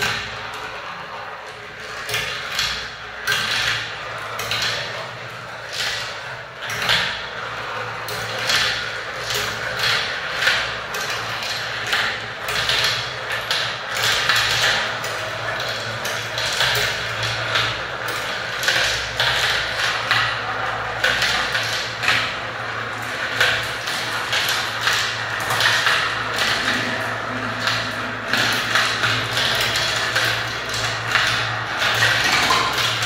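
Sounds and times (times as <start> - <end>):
marbles rolling in plastic marble run: 0.0 - 33.0.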